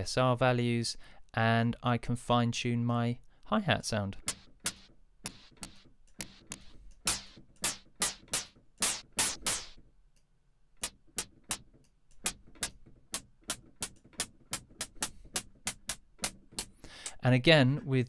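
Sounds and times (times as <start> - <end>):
synthesized hi-hat ticks: 4.3 - 9.8, 10.8 - 17.2.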